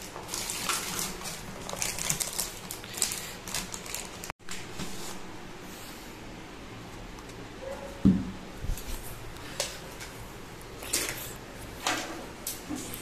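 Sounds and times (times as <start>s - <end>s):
hands rummaging cables and plastic bag: 0.0s - 4.3s.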